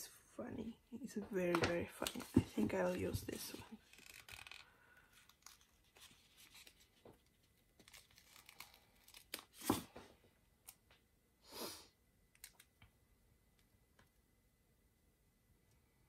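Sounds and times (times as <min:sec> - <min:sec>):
sticker peeling crinkles: 0:05.2 - 0:09.8
paper ripping: 0:07.8 - 0:10.0.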